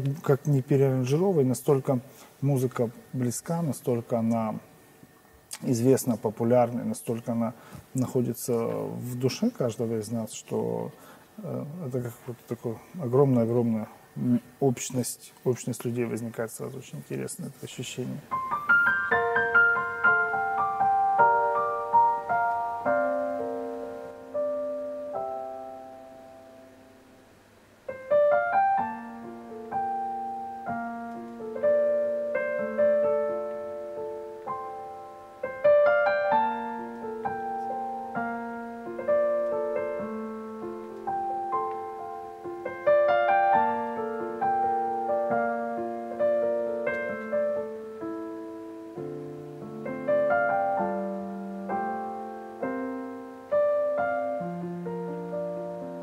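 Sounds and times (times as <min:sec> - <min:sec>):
solo piano music: 0:18.0 - 0:56.0.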